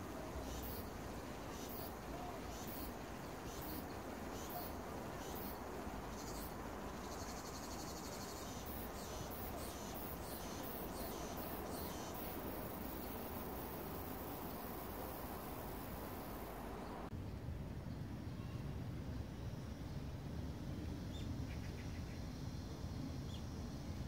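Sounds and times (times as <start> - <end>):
cicadas singing: 0.0 - 17.1, 21.0 - 24.0.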